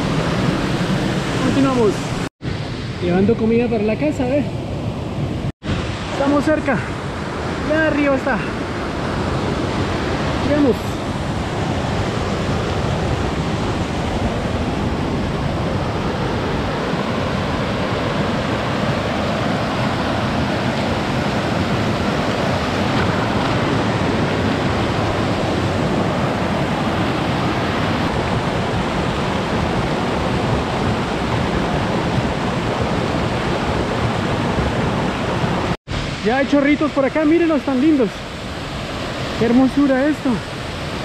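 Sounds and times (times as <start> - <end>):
creek water rushing: 0.0 - 41.0.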